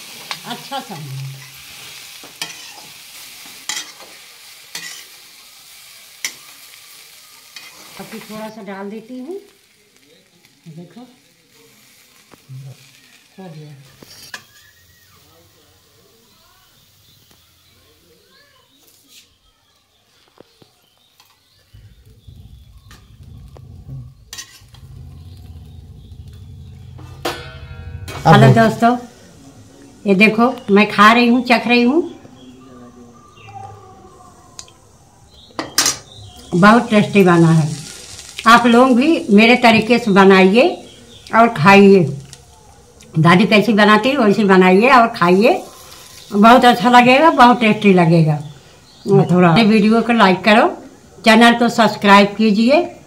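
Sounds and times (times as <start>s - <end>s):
potatoes sizzling in oil: 0.0s - 53.0s
metal spatula scraping pan: 1.2s - 3.0s, 3.7s - 5.2s, 21.8s - 29.3s.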